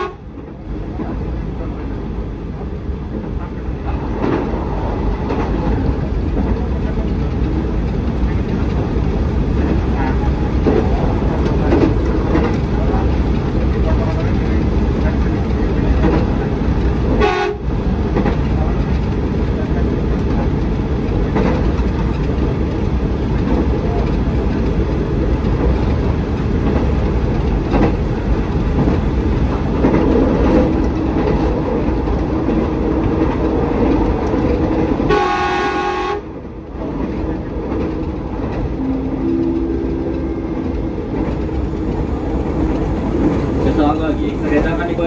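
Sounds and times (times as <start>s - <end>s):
train horn: 0.0s - 0.3s, 17.1s - 17.7s, 35.1s - 36.3s, 38.8s - 40.7s
train wheels rumbling on rails: 0.0s - 45.0s.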